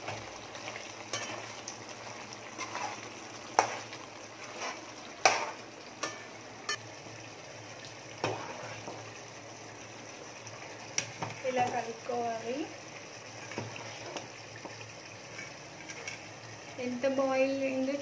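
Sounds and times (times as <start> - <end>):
chicken sizzling in pot: 0.0 - 18.0.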